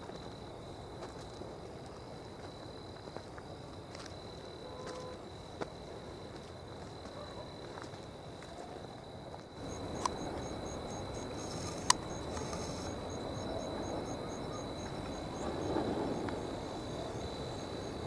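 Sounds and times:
insect high trill: 0:09.6 - 0:18.0
sharp clicks: 0:11.4 - 0:12.9.

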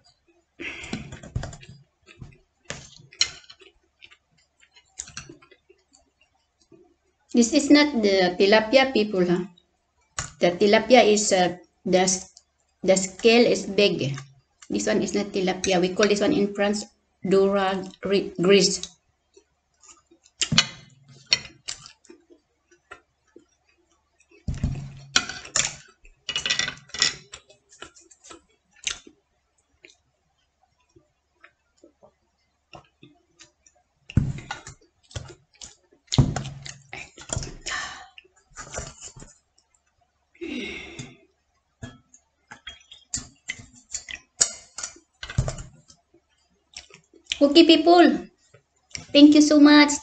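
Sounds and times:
chewing and mouth noises: 0:27.4 - 0:29.2.

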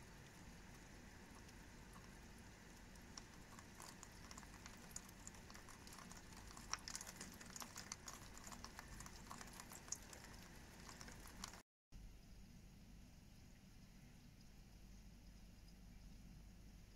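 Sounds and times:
raindrops pattering on glass: 0:01.4 - 0:11.6.

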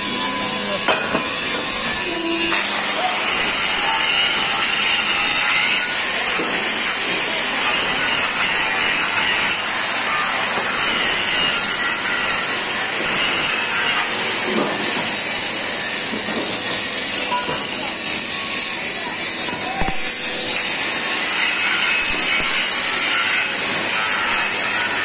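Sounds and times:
arc welding sizzling hiss: 0:00.0 - 0:25.0.

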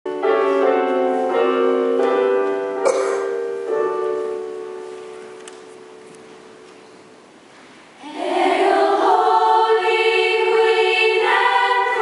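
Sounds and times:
piano playing slow chords: 0:00.1 - 0:07.4.

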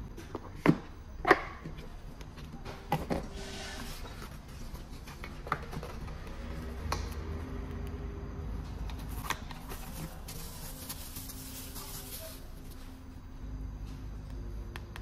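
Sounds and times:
plastic film rustling: 0:09.0 - 0:12.9.

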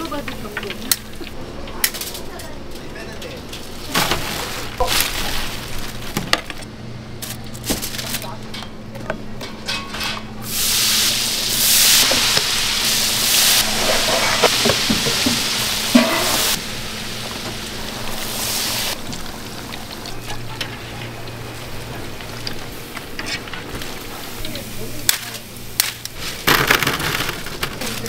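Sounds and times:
deep-frying sizzle: 0:10.5 - 0:25.8.

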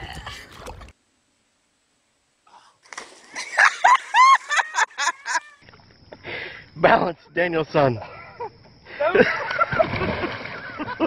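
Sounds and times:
excited high-pitched cries: 0:03.8 - 0:05.6.

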